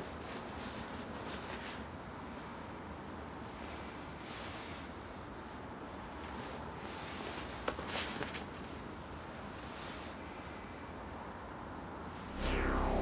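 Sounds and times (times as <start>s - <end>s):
steady low hum: 12.2s - 13.0s.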